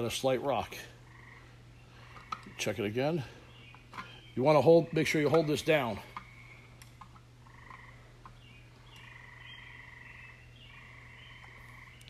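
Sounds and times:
steady low hum: 0.0s - 12.0s
trilling frog calls: 1.0s - 2.7s, 7.4s - 12.0s.

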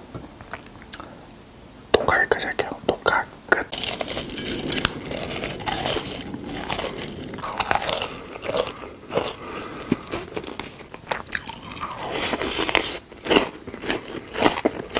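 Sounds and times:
crunchy chewing: 3.7s - 14.9s.

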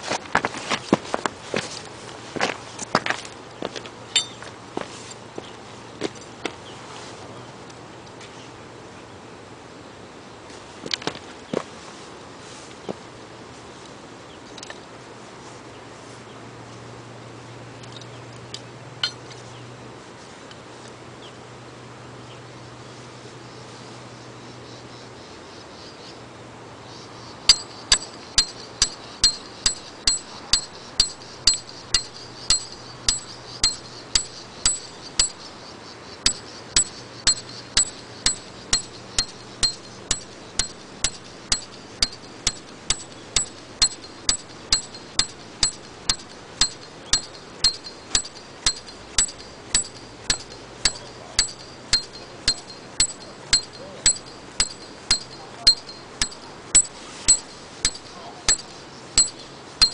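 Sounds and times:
hammer striking metal tent peg: 27.5s - 35.6s, 36.2s - 59.9s.

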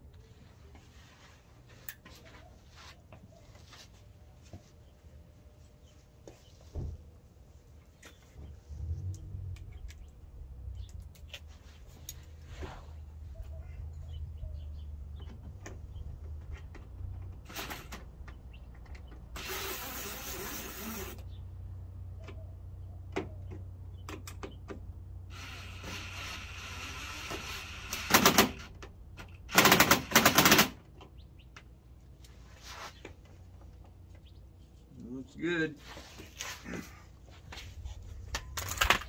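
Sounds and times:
cordless drill driving screws: 17.5s - 18.0s, 19.4s - 21.2s, 25.3s - 28.7s.

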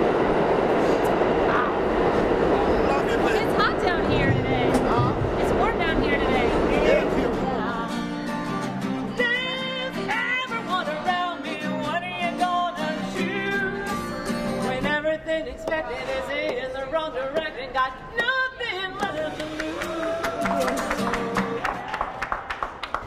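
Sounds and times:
strummed acoustic guitar: 4.1s - 15.2s, 18.2s - 21.9s
woman singing: 9.0s - 21.6s.

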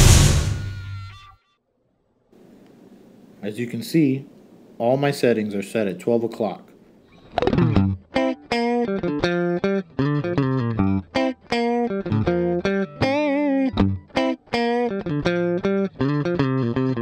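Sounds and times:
electric guitar single notes: 7.2s - 17.0s.

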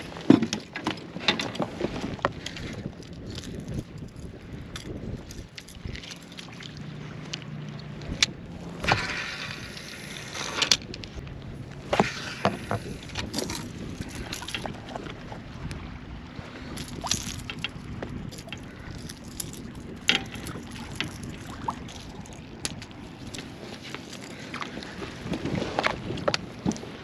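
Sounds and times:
gear knocking against kayak hull: 16.9s - 23.5s.

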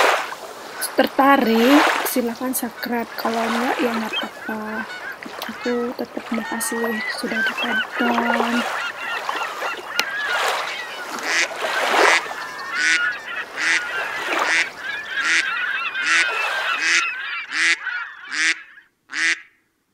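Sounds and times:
waterfowl honking: 0.0s - 19.6s
high bird chirps: 3.7s - 5.8s, 6.4s - 18.8s.

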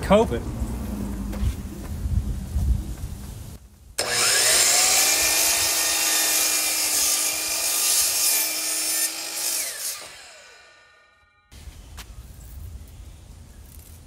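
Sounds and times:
miter saw whining: 4.0s - 11.5s.

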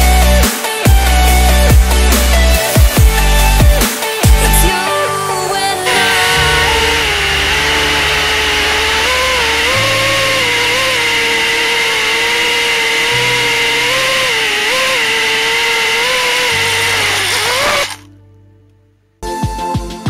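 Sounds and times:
music with steady beat: 0.0s - 5.0s, 19.2s - 20.0s
drone motors whining: 5.8s - 18.1s
low sustained music notes: 5.9s - 14.1s.

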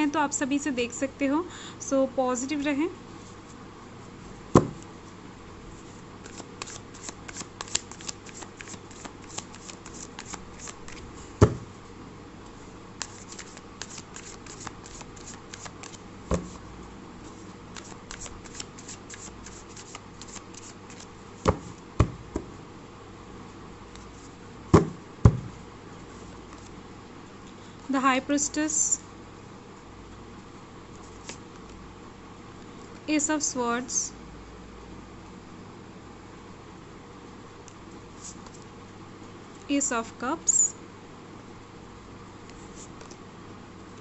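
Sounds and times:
sharp knocks: 4.6s - 4.8s, 24.8s - 25.5s
cards shuffling: 6.2s - 11.6s, 13.0s - 16.6s, 17.3s - 22.1s, 26.2s - 26.8s, 30.9s - 31.8s.

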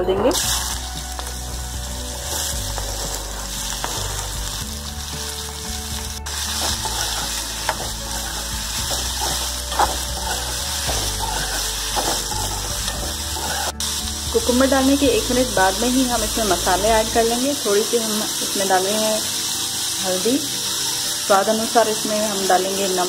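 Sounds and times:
vegetables sizzling in hot oil: 0.3s - 23.0s
metal spoon scraping a pan: 6.3s - 14.0s.

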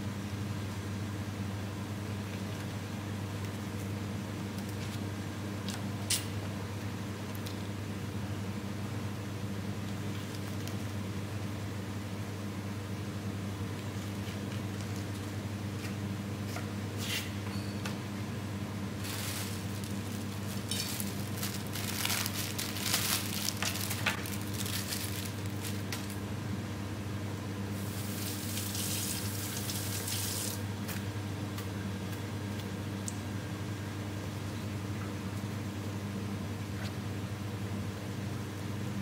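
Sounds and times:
plastic packaging crinkling: 18.9s - 26.2s.

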